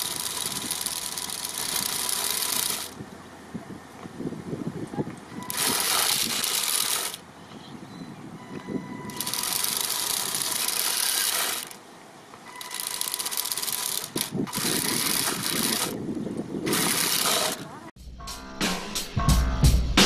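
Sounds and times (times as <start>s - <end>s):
electric motor whir: 0.0s - 3.0s, 5.4s - 7.3s, 9.0s - 11.8s, 12.6s - 17.8s
wheel rollers rattling on asphalt: 0.0s - 3.2s, 5.0s - 7.3s, 9.1s - 17.9s.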